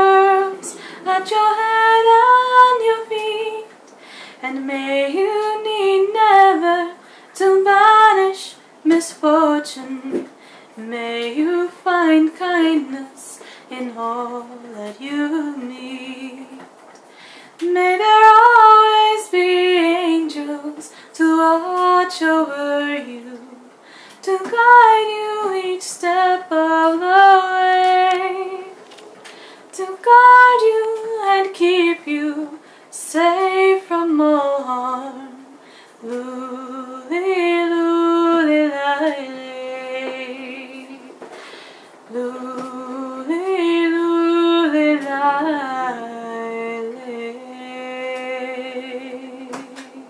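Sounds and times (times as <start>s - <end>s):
woman singing a lullaby: 0.0s - 16.8s, 17.5s - 29.0s, 29.7s - 41.2s, 42.0s - 50.0s.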